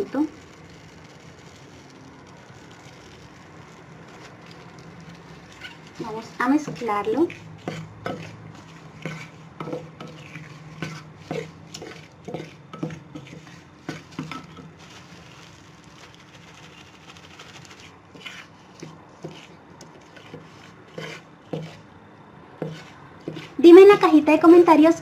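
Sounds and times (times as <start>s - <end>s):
spatula stirring in glass dish: 0.0s - 22.0s, 22.6s - 24.2s.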